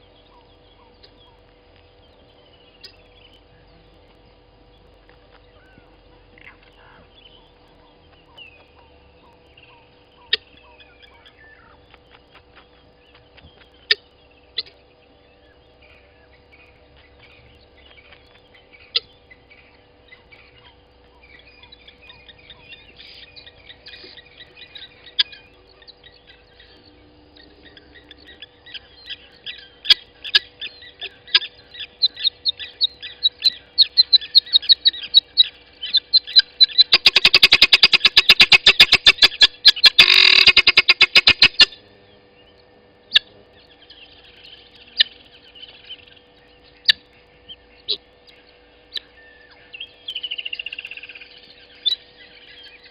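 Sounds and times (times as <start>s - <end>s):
birds whistling: 0.0s - 52.9s
chattering bird calls: 0.0s - 52.9s
sharp bird clicks: 28.7s - 41.8s.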